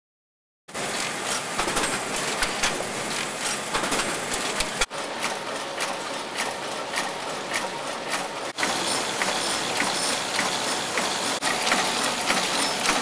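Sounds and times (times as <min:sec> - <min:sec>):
printing press running: 0:00.7 - 0:13.0
machinery whirring: 0:00.8 - 0:13.0
sharp mechanical clicks: 0:01.0 - 0:13.0.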